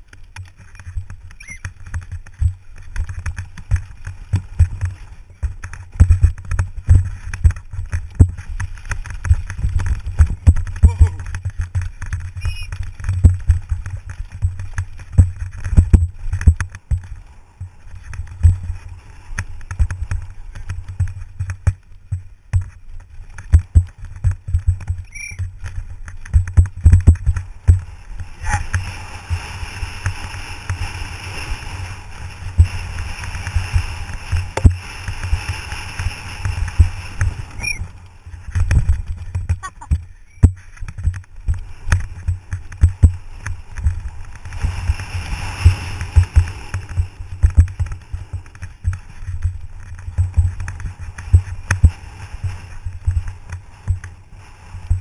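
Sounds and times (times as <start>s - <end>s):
bike knocks and rattles: 0.0s - 31.4s, 32.4s - 54.1s
wind rumble on microphone: 0.0s - 55.0s
steady hiss: 40.2s - 55.0s.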